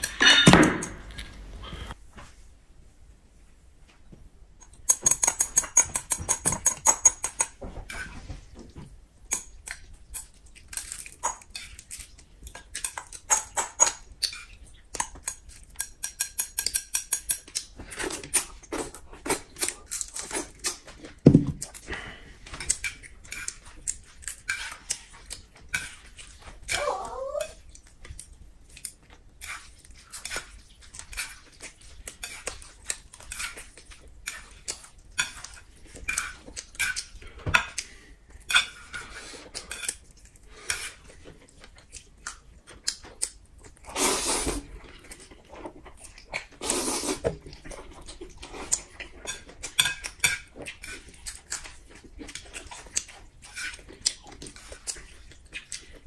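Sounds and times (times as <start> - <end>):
chopsticks clicking against plate: 4.6 - 7.6, 9.3 - 17.7
chewing: 9.3 - 56.0.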